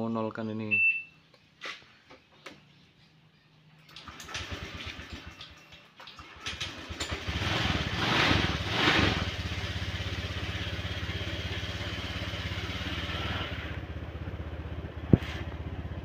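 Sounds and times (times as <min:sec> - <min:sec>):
scooter engine revving: 0:04.0 - 0:05.3, 0:06.3 - 0:16.0.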